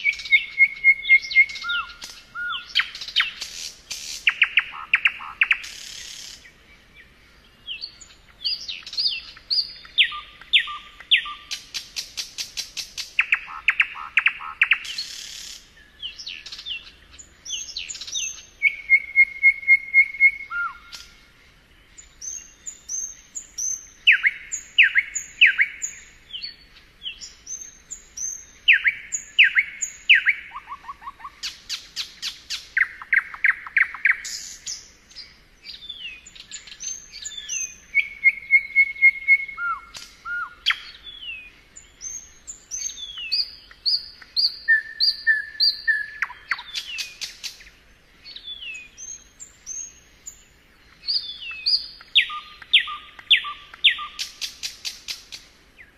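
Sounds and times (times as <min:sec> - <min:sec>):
nightingale singing: 0:00.0 - 0:55.9.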